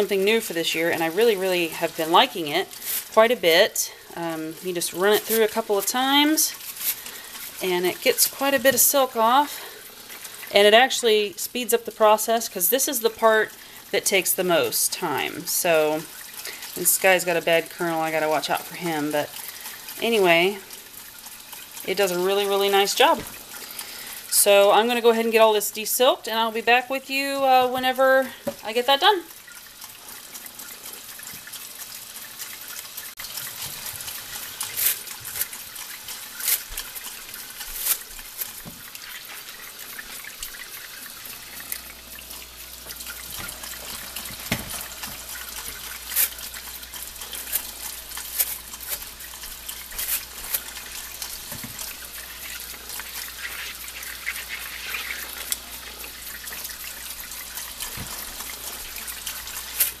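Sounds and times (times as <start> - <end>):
brush scrubbing corn: 0.0 - 3.4, 4.2 - 10.2, 33.4 - 42.2, 42.9 - 60.0
tap running into sink: 37.6 - 39.2, 42.8 - 46.5, 49.6 - 52.1, 56.5 - 60.0.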